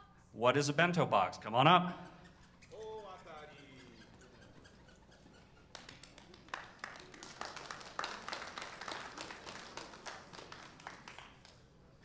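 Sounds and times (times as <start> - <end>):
audience applauding: 5.1 - 11.7.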